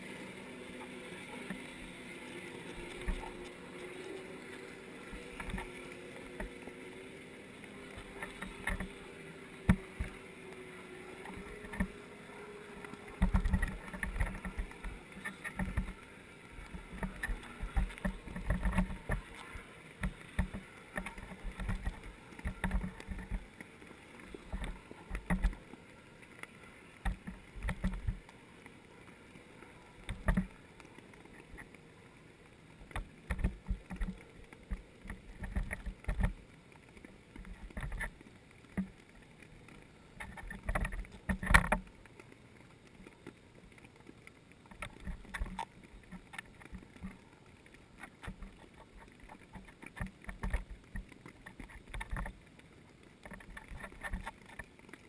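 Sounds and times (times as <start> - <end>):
muffled underwater thumps and knocks: 13.1 - 16.0, 16.6 - 19.3, 20.0 - 23.5, 24.4 - 25.6, 27.0 - 28.2, 30.0 - 30.6, 32.9 - 36.4, 37.4 - 39.0, 40.2 - 41.9, 48.0 - 52.4.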